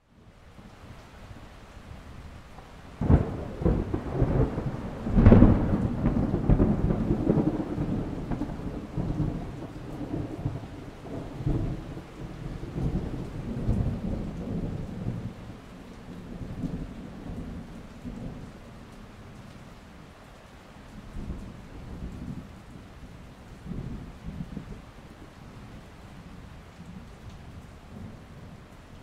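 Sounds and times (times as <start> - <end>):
thunder crack and rumble: 3.0 - 18.6, 23.6 - 24.9.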